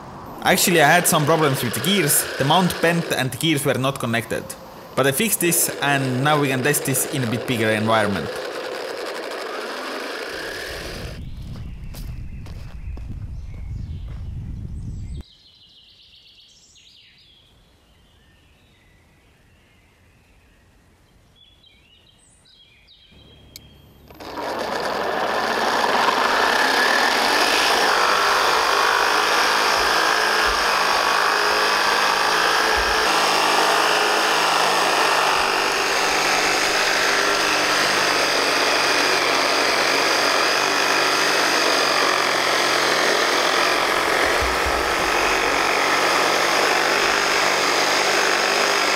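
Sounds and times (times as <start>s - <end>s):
motor gearbox whirring: 0.0s - 11.2s, 23.2s - 48.9s.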